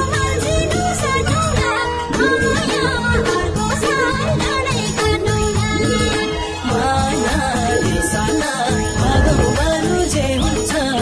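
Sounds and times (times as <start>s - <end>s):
song with singing over a beat: 6.6s - 11.0s.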